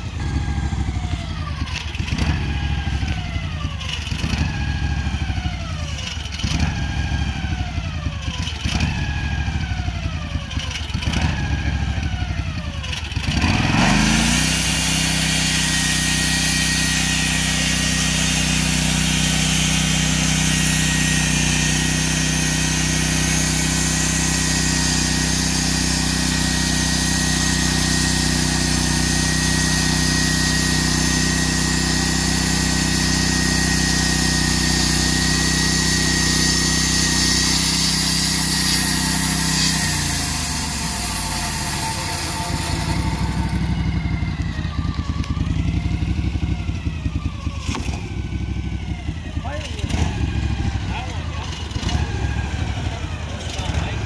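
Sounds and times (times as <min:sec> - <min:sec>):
sawmill engine running: 0:00.0 - 0:54.0
band blade cutting log: 0:13.4 - 0:44.6.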